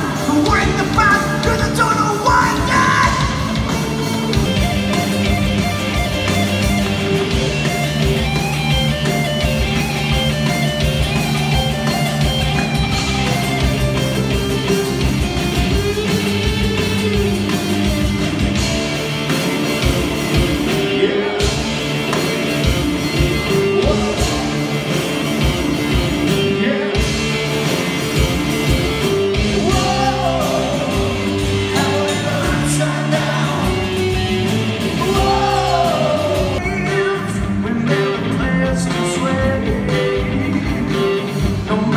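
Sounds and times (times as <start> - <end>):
person singing: 0.0 - 3.7, 23.5 - 24.9, 29.5 - 34.0, 34.9 - 41.9
electric guitars: 0.0 - 41.9
steady drum beat: 0.0 - 41.9.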